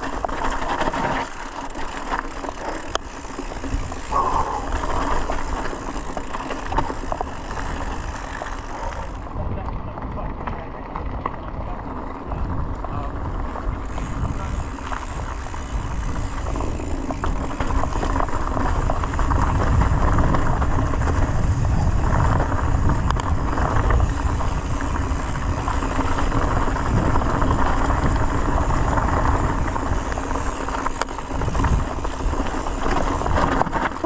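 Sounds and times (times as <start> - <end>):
bike rattling over bumps: 0.0 - 34.0
bike tyres rumbling on dirt: 0.0 - 34.0.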